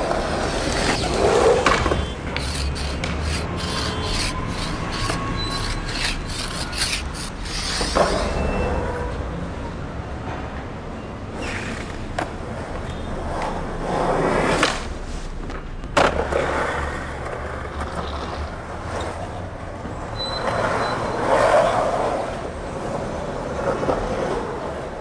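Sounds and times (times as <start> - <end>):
skateboard clacks: 0.0 - 5.3, 15.5 - 18.7
skateboard wheels rolling on concrete: 0.0 - 9.8, 10.6 - 25.0.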